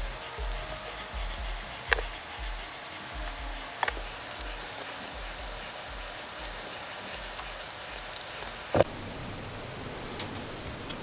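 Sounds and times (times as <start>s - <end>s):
faint low pulsing: 0.0s - 11.0s
screwdriver and metal parts clicking: 6.4s - 8.8s.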